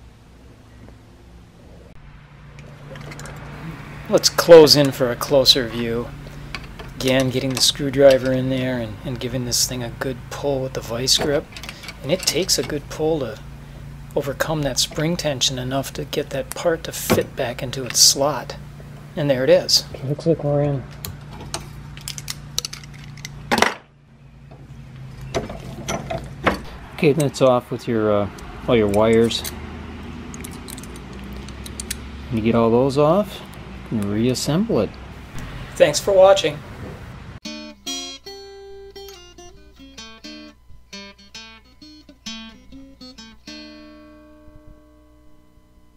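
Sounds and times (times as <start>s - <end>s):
low steady hum: 0.0s - 45.9s
metal clatter: 2.5s - 3.5s, 11.1s - 13.0s, 25.3s - 26.8s
light metallic clicks and clinks: 11.5s - 12.8s, 30.3s - 32.0s
acoustic guitar plucked and strummed: 37.4s - 45.6s.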